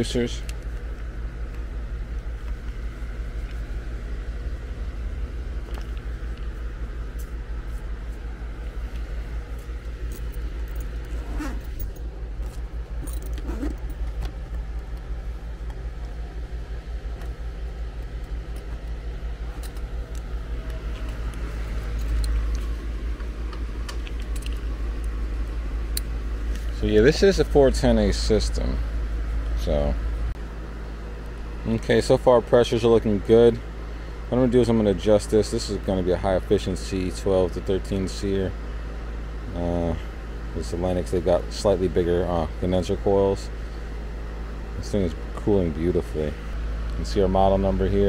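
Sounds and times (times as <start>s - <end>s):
heat pump humming: 0.0s - 48.0s
metal tools clinking and rattling: 13.0s - 14.3s.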